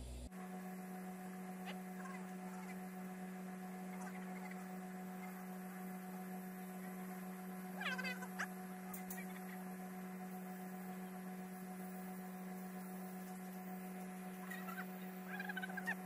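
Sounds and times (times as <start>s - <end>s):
welding arc humming: 0.0s - 16.0s.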